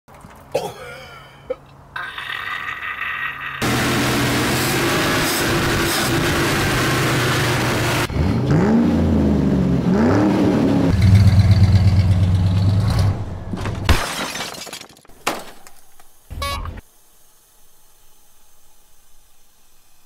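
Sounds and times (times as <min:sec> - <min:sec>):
vee eight engine revving: 0:03.6 - 0:13.4.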